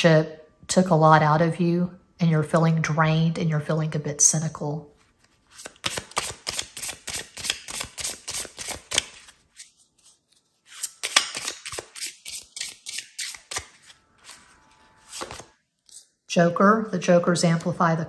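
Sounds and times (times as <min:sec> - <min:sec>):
cards being shuffled: 0:05.0 - 0:16.1.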